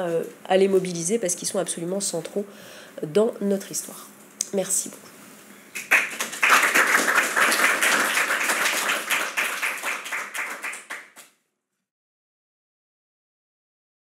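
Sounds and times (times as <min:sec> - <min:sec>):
small audience applauding: 0:05.8 - 0:11.4.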